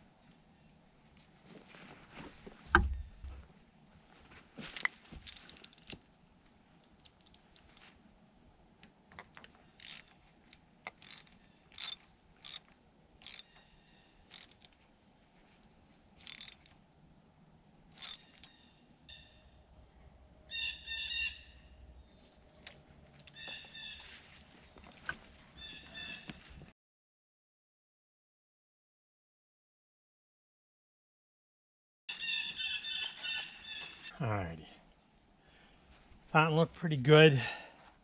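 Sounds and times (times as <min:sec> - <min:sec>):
ratchet wrench clicking: 0:09.8 - 0:13.6, 0:14.3 - 0:14.8, 0:16.2 - 0:16.7, 0:17.9 - 0:18.6.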